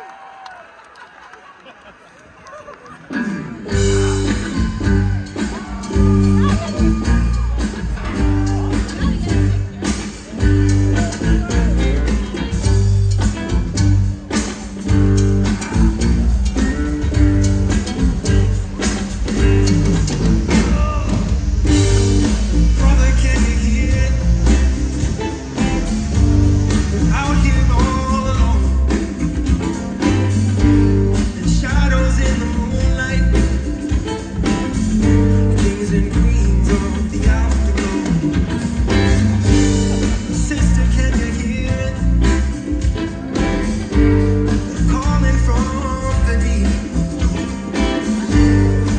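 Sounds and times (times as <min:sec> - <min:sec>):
live rock band playing: 0:03.1 - 0:48.9
man singing lead vocal: 0:03.2 - 0:13.3, 0:20.2 - 0:48.9.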